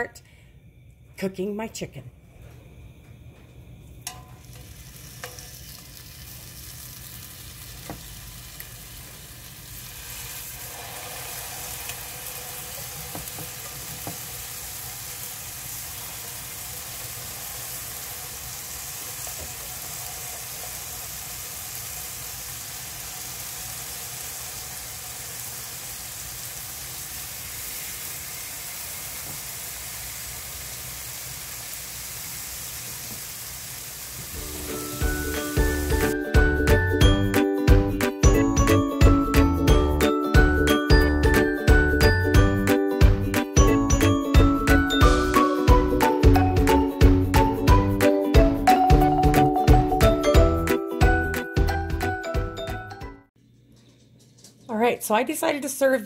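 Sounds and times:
chicken sizzling on a griddle: 4.1 - 36.2.

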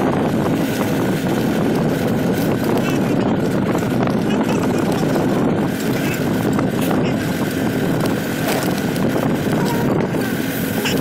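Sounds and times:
vehicle engine and road noise: 0.0 - 11.0.

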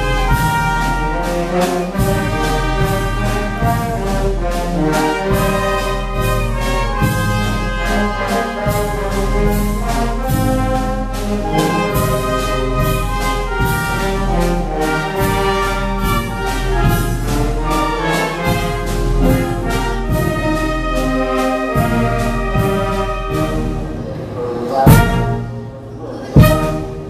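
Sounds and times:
bass drum and snare strokes: 0.0 - 23.8
wind band playing a bolero: 0.0 - 27.0.

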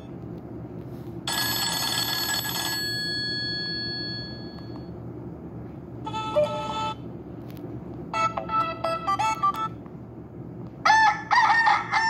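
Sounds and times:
steady low hum: 0.0 - 12.0
phone ringtone tones: 1.3 - 4.8, 6.1 - 7.0.

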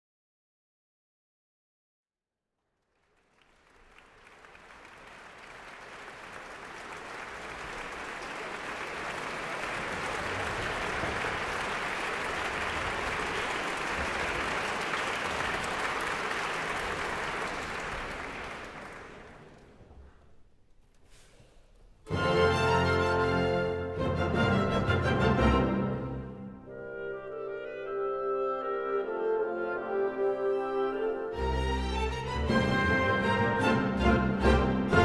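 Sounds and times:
audience applauding: 2.8 - 20.1.

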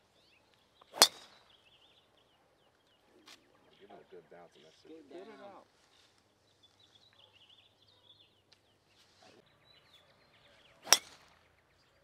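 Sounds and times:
faint bird chirps: 0.0 - 5.1, 5.8 - 12.0
golf club striking ball: 0.9 - 1.5, 10.8 - 11.4.

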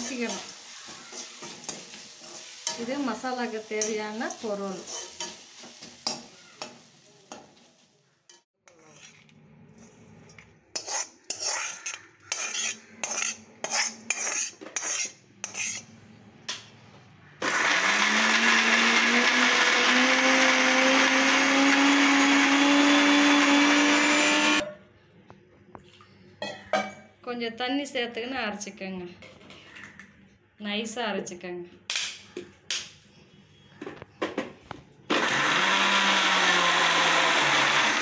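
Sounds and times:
mixer grinder whining: 17.4 - 24.6, 35.1 - 38.0.

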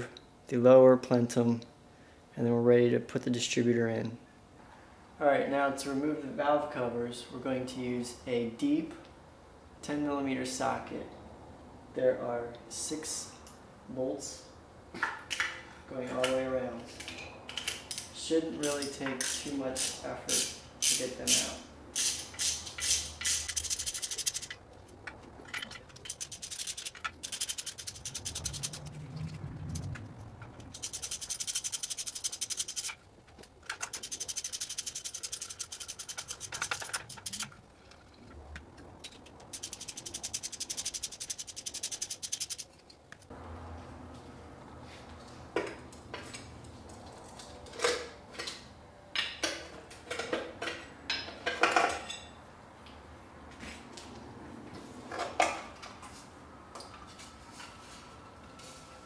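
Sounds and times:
ratchet clicking: 22.0 - 24.6, 25.6 - 29.0, 30.6 - 33.0, 33.6 - 37.6, 39.0 - 43.3
metallic clinks of bolts and tools: 25.4 - 28.8.

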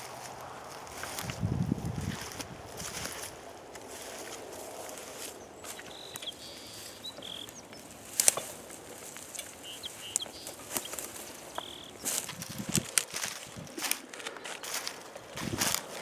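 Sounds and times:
footsteps crunching through dry grass: 0.0 - 16.0
bird whistling: 5.5 - 8.0, 9.3 - 12.3.

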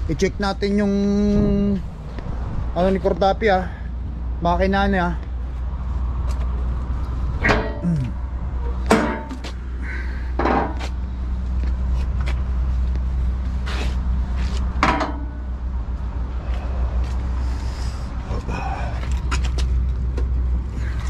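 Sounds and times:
metal knocks and clunks: 7.4 - 9.6, 10.4 - 10.8, 14.8 - 15.5.

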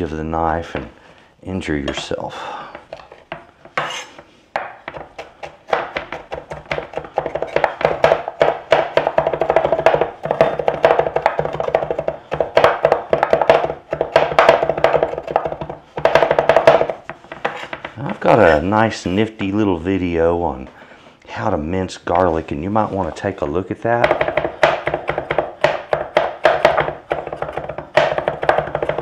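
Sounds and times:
knife chopping on wooden board: 2.8 - 18.0, 24.0 - 29.0.

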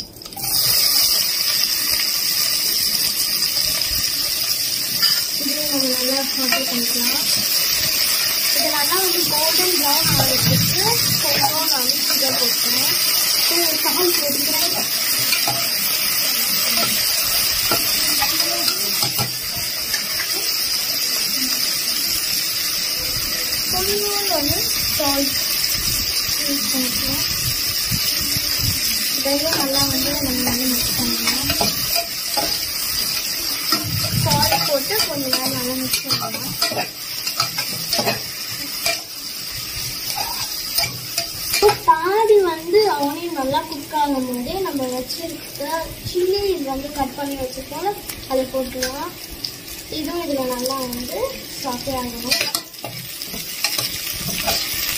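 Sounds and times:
steady high hiss: 0.0 - 54.9
spoon scraping and clinking pot: 31.2 - 39.1.

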